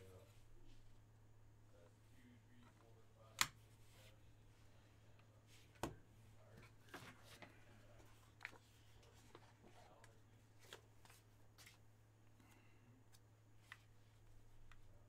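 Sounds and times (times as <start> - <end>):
low steady hum: 0.0 - 15.0
trading cards being handled: 5.6 - 11.8.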